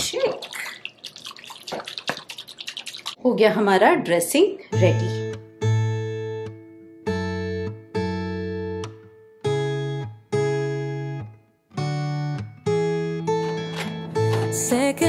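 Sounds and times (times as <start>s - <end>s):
acoustic guitar strumming chords: 4.7s - 15.0s.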